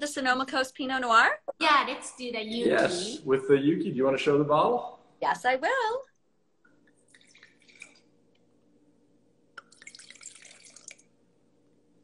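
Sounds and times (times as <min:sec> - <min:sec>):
wine pouring into a glass: 0:06.9 - 0:08.2, 0:09.6 - 0:11.2.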